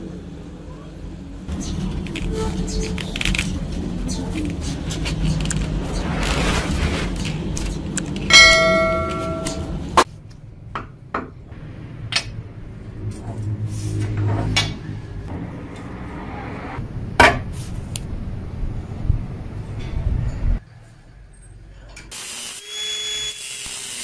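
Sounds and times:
steel struck ringing like a bell: 8.3s - 9.8s.

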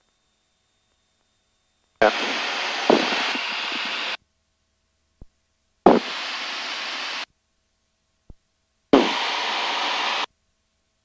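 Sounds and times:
steady radio hiss: 0.0s - 11.0s
intercom click: 2.0s - 4.2s.

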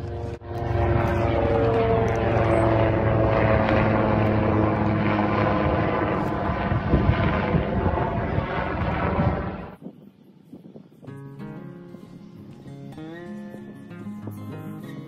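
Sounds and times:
helicopter flying overhead: 0.0s - 9.8s.

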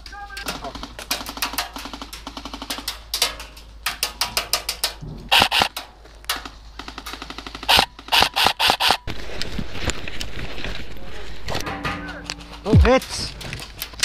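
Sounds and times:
airsoft guns firing bursts: 0.4s - 3.3s, 5.3s - 5.8s, 6.4s - 9.1s.

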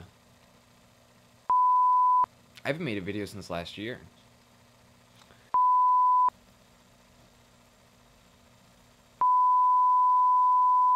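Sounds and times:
electronic beep: 1.5s - 2.3s, 5.6s - 6.3s, 9.2s - 10.9s.

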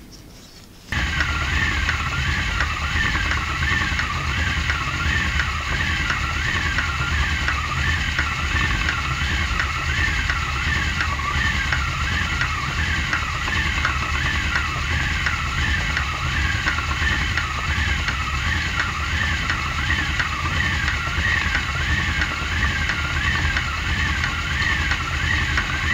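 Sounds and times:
low steady rumble: 0.9s - 25.9s
spinning wheel whirring: 0.9s - 25.9s.

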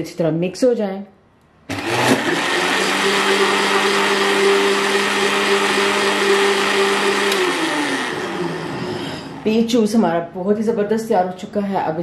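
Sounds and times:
blender running: 1.7s - 9.6s
blender switch click: 7.2s - 7.6s.

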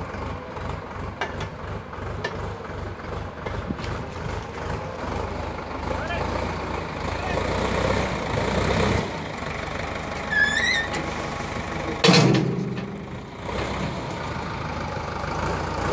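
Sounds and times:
tractor engine running: 0.0s - 15.9s
high rising squeal: 10.3s - 11.1s.

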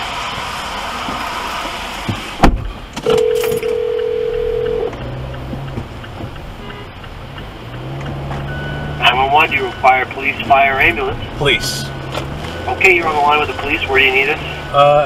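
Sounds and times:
steady rain: 0.0s - 2.4s
car noise: 0.0s - 15.0s
telephone ringback tone: 3.0s - 4.9s.

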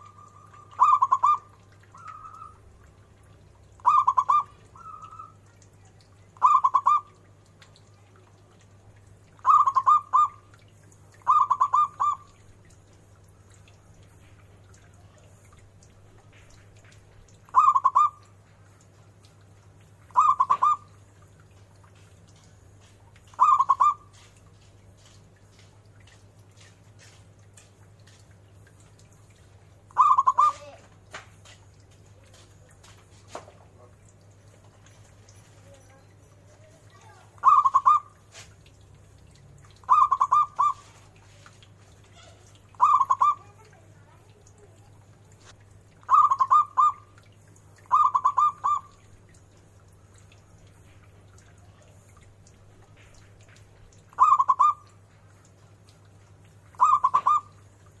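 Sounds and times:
dove cooing: 0.0s - 2.6s, 3.8s - 5.4s, 6.4s - 7.2s, 9.4s - 10.4s, 11.2s - 12.3s, 17.5s - 18.2s, 20.1s - 20.9s, 23.4s - 24.3s, 30.0s - 30.8s, 37.1s - 38.5s, 39.9s - 41.3s, 42.1s - 43.8s, 46.1s - 47.0s, 47.9s - 49.1s, 54.2s - 54.9s, 56.8s - 57.6s.

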